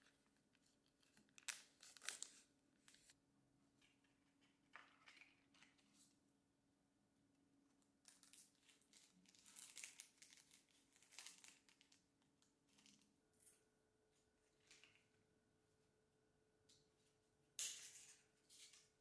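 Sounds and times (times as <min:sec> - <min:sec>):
plastic flower wrapping rustling: 0:00.0 - 0:03.2, 0:08.1 - 0:12.0.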